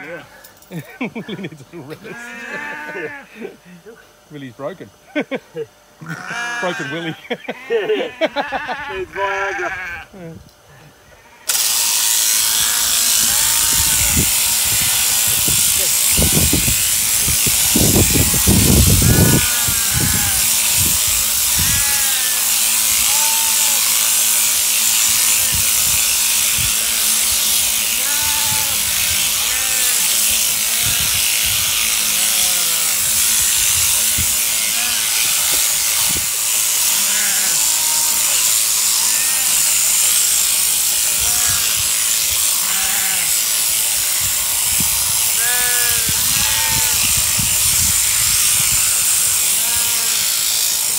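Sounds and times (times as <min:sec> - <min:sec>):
sheep shears buzzing: 0:00.0 - 0:50.9
sheep bleating: 0:02.1 - 0:03.4, 0:06.0 - 0:10.2, 0:12.4 - 0:16.0, 0:17.6 - 0:36.1, 0:36.8 - 0:40.4, 0:41.0 - 0:43.5, 0:45.3 - 0:47.2, 0:47.9 - 0:50.6.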